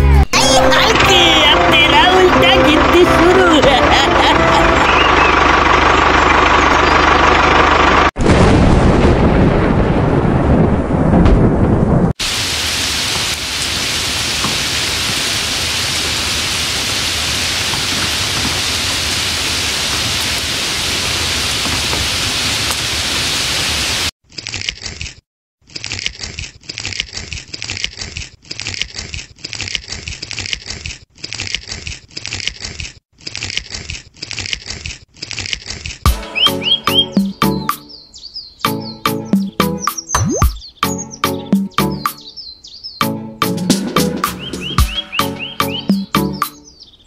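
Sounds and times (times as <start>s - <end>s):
choppy high-pitched sound: 0.0s - 5.0s, 38.7s - 40.6s
thunder rumbling: 8.2s - 22.7s
heavy rain: 8.2s - 24.1s.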